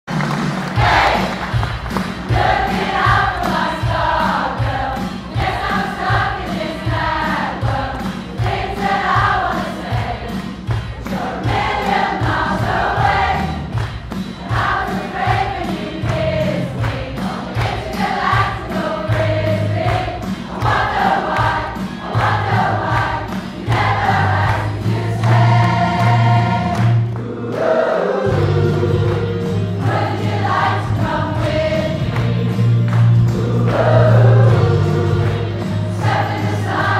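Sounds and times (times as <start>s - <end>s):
steady beat: 0.1s - 26.7s
choir singing a pop song: 0.8s - 36.9s.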